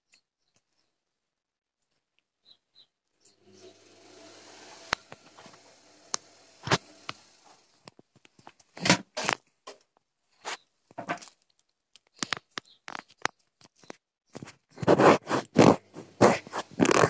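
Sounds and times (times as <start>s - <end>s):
washing machine tumbling laundry: 3.3s - 7.9s.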